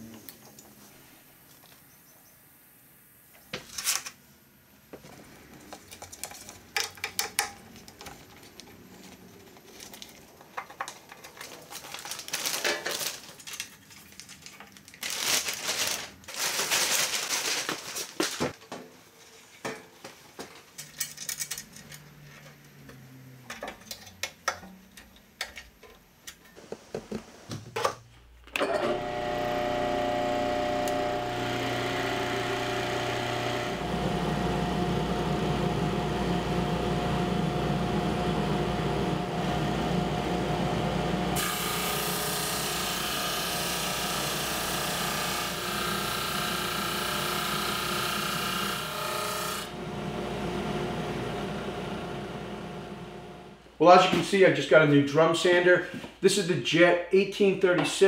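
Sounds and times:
rustling and scraping: 5.0 - 23.0, 26.3 - 27.8
drum sander motor hum: 28.7 - 53.4.

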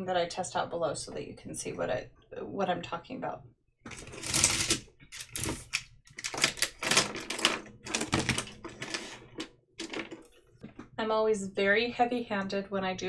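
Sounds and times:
plastic pens clattering together: 3.9 - 10.4.

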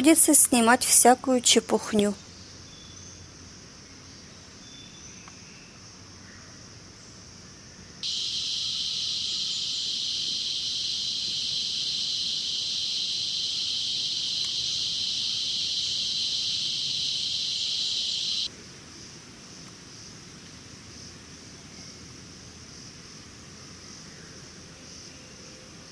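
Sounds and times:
faint insect hum: 0.0 - 25.9
high-pitched insect buzzing: 8.0 - 18.5.

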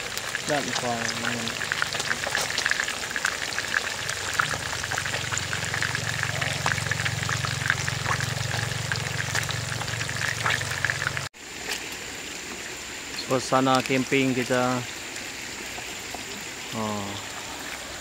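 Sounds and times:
fish deep-frying in oil: 0.0 - 18.0
low hum: 4.1 - 11.3.

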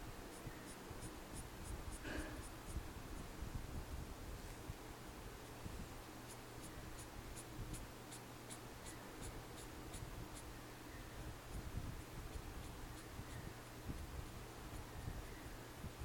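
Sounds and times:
marker scratching on paper: 0.3 - 2.8, 6.3 - 10.5, 12.3 - 14.1.

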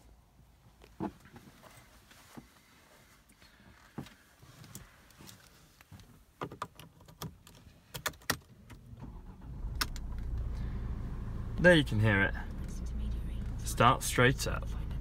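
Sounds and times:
diesel engine starting and rumbling: 8.9 - 15.0.

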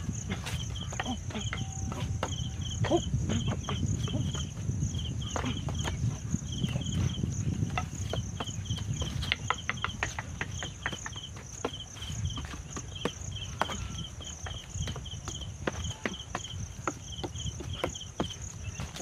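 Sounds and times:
insects chirping: 0.0 - 19.0
arms knocking on wooden dummy: 7.6 - 19.0.

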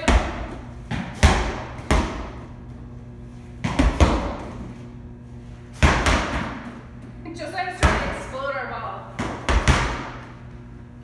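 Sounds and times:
medicine ball thuds against wall: 0.0 - 2.4, 3.6 - 4.6, 5.7 - 6.7, 9.2 - 10.2.

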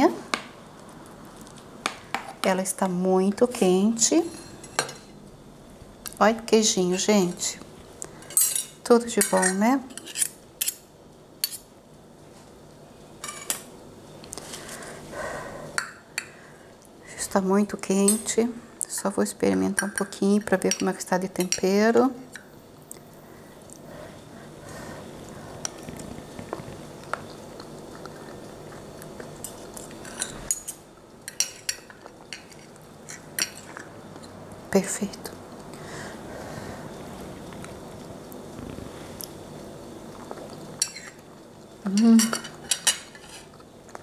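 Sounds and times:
cutlery scraping on a plate: 8.2 - 10.8, 42.2 - 43.6.

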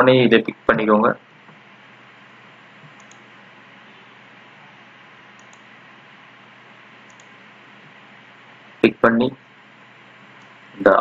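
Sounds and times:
microphone room tone hiss: 0.0 - 11.0
faint mouse clicks: 2.8 - 3.2, 5.4 - 5.7, 7.1 - 7.4.

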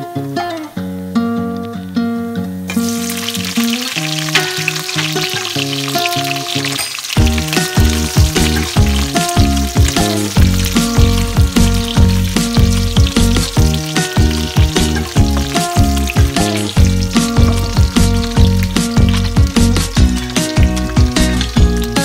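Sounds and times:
vegetables sizzling in oil: 0.0 - 1.7, 2.4 - 22.0
music with beat and bass: 7.2 - 22.0.

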